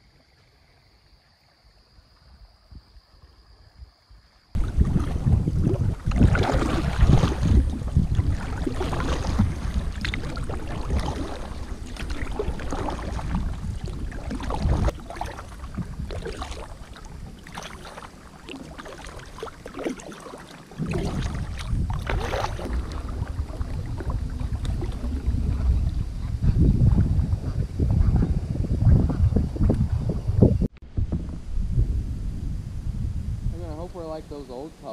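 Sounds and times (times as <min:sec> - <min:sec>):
wind rumble on microphone: 0:02.2 - 0:20.0, 0:20.7 - 0:34.9
water against hull: 0:04.5 - 0:34.9
paddle splashes: 0:04.6 - 0:28.1.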